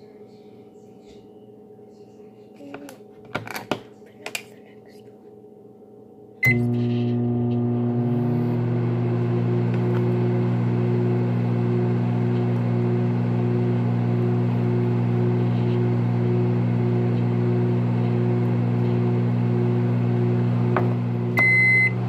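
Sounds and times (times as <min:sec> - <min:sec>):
loud machine hum: 0:06.4 - 0:22.0.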